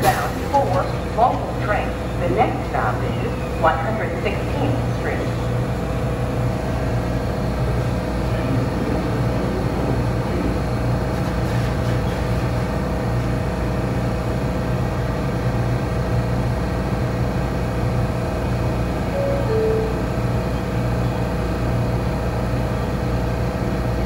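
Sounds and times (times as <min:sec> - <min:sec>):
subway train hum and rumble: 0:00.0 - 0:24.0
mid-pitched tone: 0:19.1 - 0:20.5.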